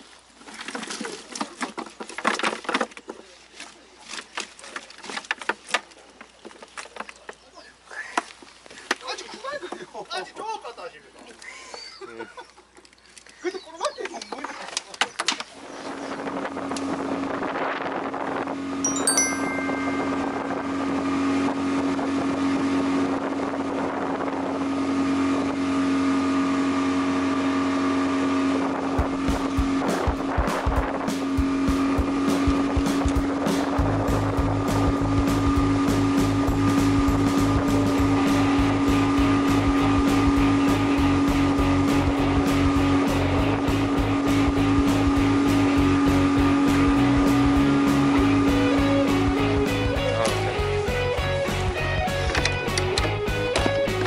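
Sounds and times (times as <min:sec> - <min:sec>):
wind and water rushing: 0:15.5 - 0:51.7
boat engine droning: 0:18.1 - 0:54.0.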